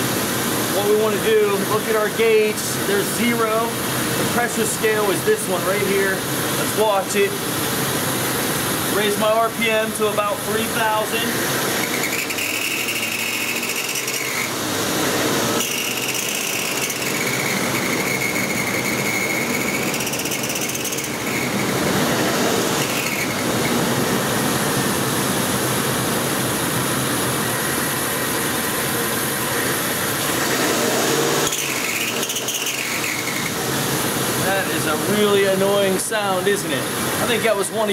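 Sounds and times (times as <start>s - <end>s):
high-pitched wavering squeal: 9.0s - 14.6s, 15.6s - 24.3s, 31.4s - 33.6s.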